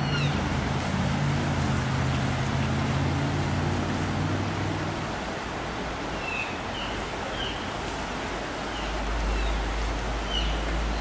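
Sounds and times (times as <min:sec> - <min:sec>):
river rapids rushing: 0:00.0 - 0:11.0.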